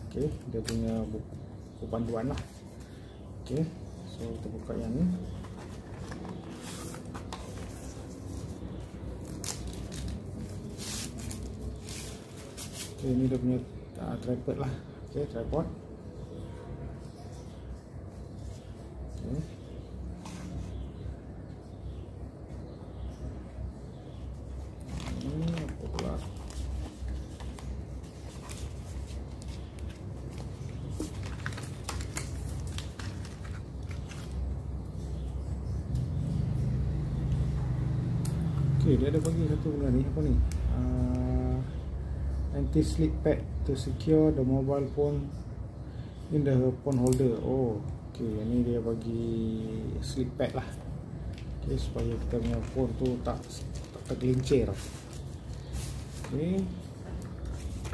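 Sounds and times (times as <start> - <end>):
packaging rustling and crinkling: 5.1 - 13.0, 24.8 - 34.6, 51.2 - 57.9.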